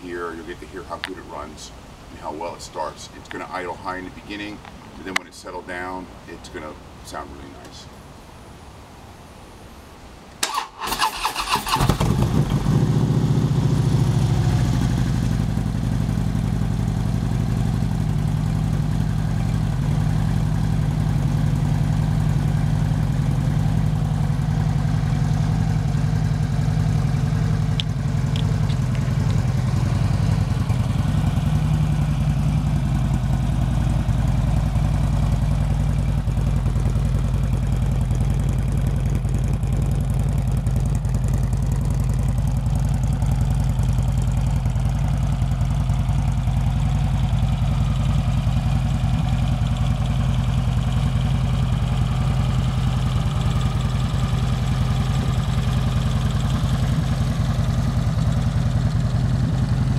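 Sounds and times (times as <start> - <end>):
electric starter cranking: 10.4 - 12.2
motorcycle engine idling: 10.5 - 59.9.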